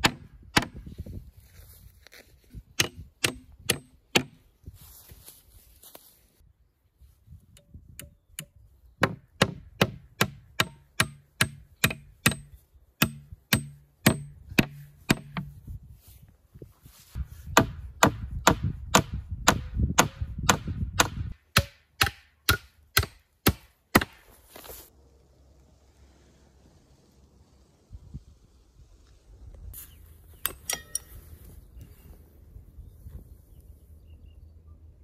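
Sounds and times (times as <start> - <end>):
axe hammering nails into wood: 0.0 - 0.8, 2.8 - 4.4, 8.0 - 15.5, 17.5 - 24.2.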